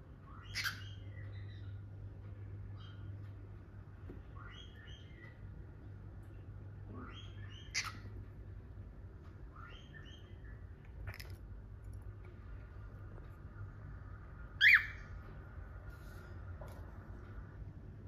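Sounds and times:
low steady hum: 0:00.0 - 0:18.0
cockatiels chirping: 0:00.2 - 0:01.8, 0:04.2 - 0:05.5, 0:06.9 - 0:08.2, 0:09.5 - 0:11.4, 0:14.5 - 0:15.2.

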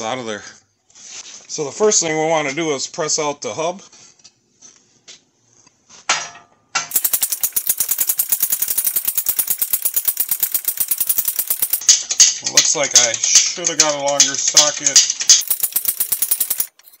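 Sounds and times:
fast even clicking: 0:06.9 - 0:11.9, 0:13.8 - 0:17.0
metal parts knocking: 0:06.9 - 0:12.0, 0:14.1 - 0:17.0.

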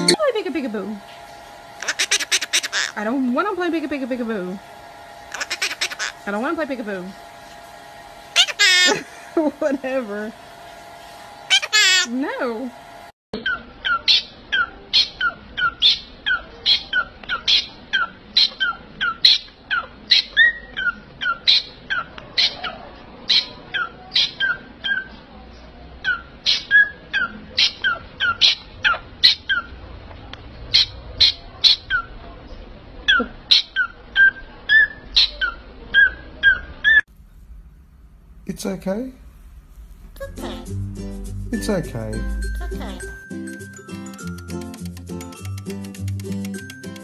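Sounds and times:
cockatiel chirping: 0:01.8 - 0:03.0.

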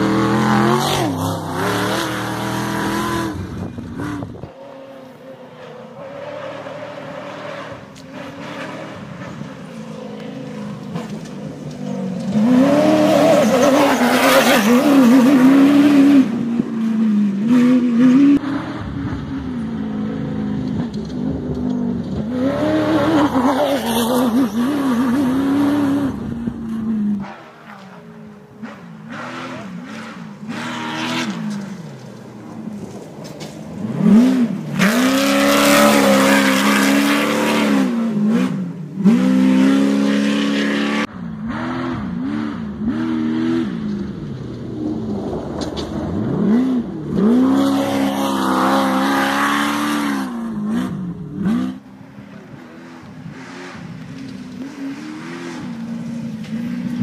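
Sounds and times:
off-road vehicle engines revving past: 0:00.0 - 0:57.0.

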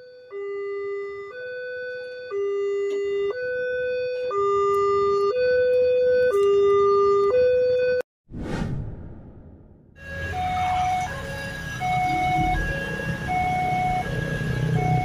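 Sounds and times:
two-tone crossing alarm: 0:00.0 - 0:08.0, 0:10.0 - 0:15.0
faint traffic rumble: 0:10.0 - 0:15.0.

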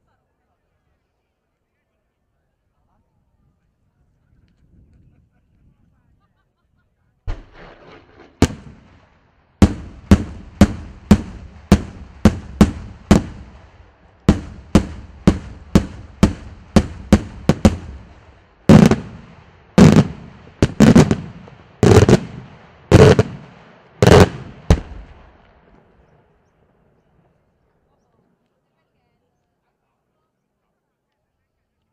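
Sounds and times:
fireworks bursting: 0:07.3 - 0:25.6
heavy echoing booms: 0:07.3 - 0:25.6.

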